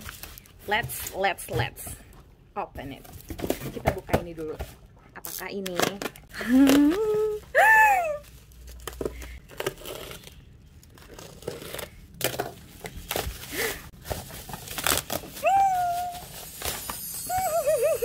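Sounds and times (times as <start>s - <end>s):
bubble wrap crinkling and tearing: 0.0s - 1.2s, 6.5s - 18.0s.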